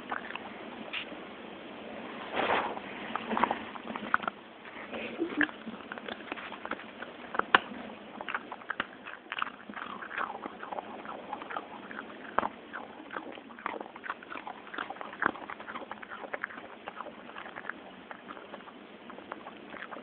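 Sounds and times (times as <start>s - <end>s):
dog crunching treats: 3.0s - 20.0s
dog mouth clicks: 5.4s - 12.6s.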